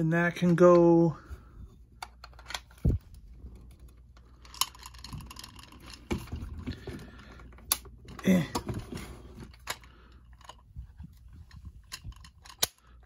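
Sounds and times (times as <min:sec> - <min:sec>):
plastic toy parts clicking: 0:02.0 - 0:02.9, 0:03.6 - 0:06.1, 0:11.5 - 0:13.0.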